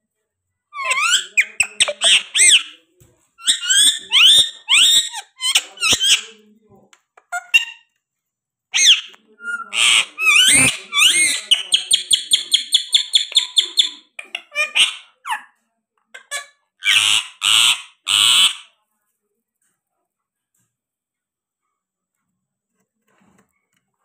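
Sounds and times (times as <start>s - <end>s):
parakeet harsh squawks: 0.8s - 2.7s, 8.8s - 15.4s, 16.2s - 18.7s.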